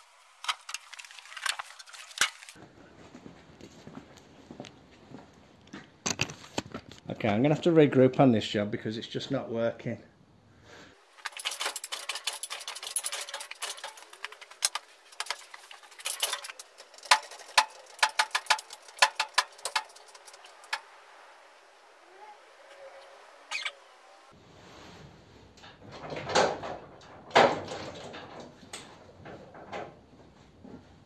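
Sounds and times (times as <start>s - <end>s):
sharp clicks and taps of mechanical work: 11.3s - 20.9s.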